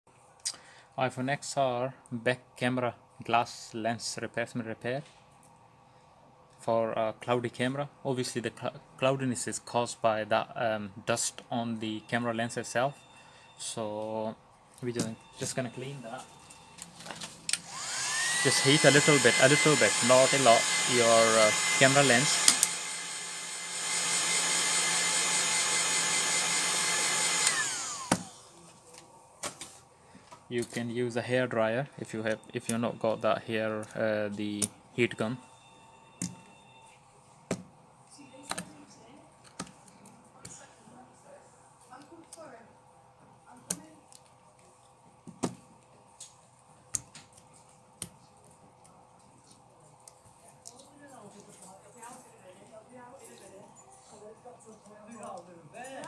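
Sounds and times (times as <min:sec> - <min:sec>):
heat gun blowing with whine: 0:17.5 - 0:28.6.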